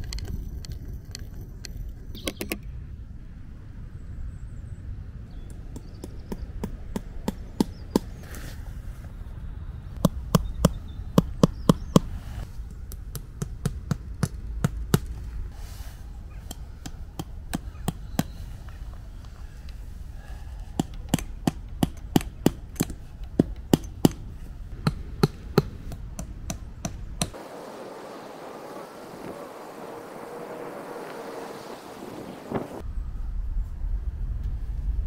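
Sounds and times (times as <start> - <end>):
hammer tapping wooden posts: 5.5 - 8.2, 10.0 - 12.1, 12.8 - 15.2, 16.4 - 18.4, 20.7 - 27.4.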